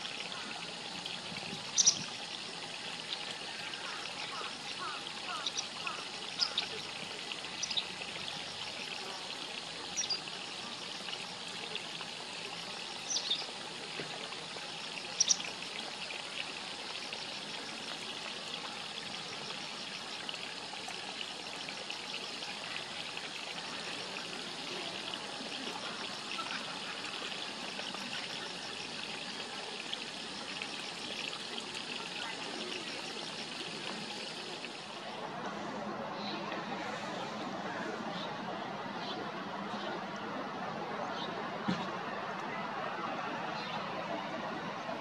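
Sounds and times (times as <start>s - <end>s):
flowing water hiss: 0.0s - 45.0s
small bird calling: 1.8s - 2.1s, 3.6s - 6.7s, 15.2s - 15.4s.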